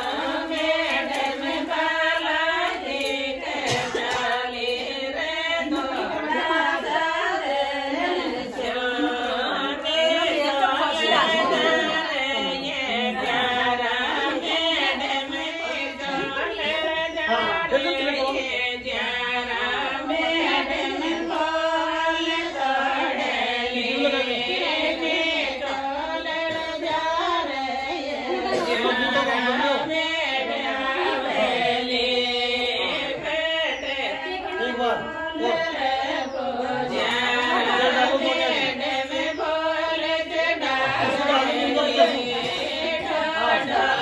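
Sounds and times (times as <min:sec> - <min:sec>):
women singing a folk song: 0:00.0 - 0:44.0.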